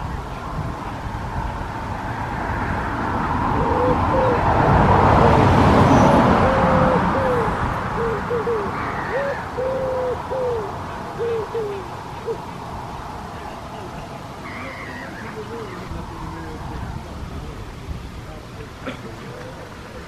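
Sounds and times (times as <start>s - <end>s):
pigeon cooing: 3.6s - 12.6s.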